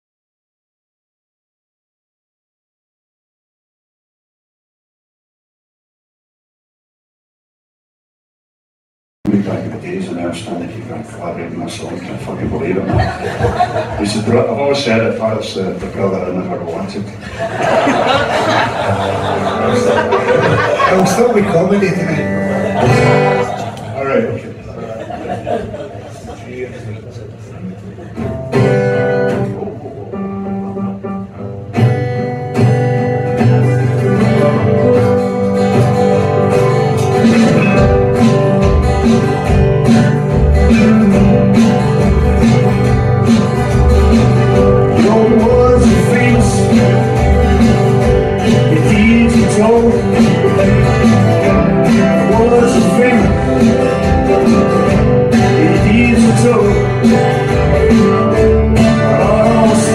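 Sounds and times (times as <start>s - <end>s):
live band playing: 11.7s - 24.6s, 28.0s - 59.9s
drum and bass beat: 35.7s - 59.9s.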